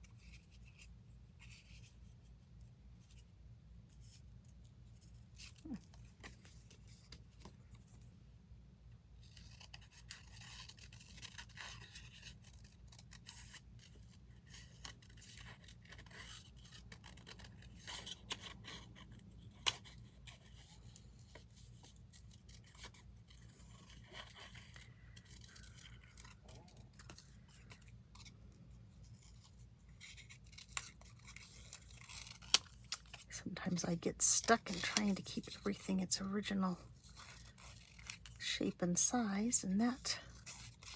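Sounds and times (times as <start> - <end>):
scissors snipping paper: 19.5 - 28.3, 29.2 - 33.3
paper rustling: 19.5 - 33.3
low steady hum: 20.2 - 40.9.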